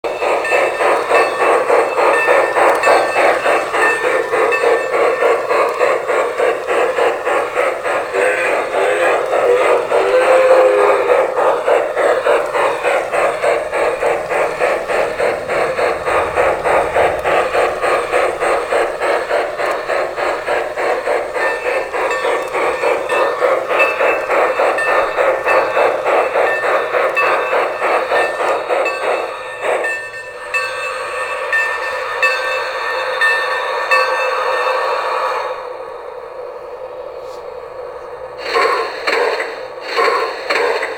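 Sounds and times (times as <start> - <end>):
model locomotive steam chuffing: 0.0 - 40.9
steady sound: 0.1 - 30.3.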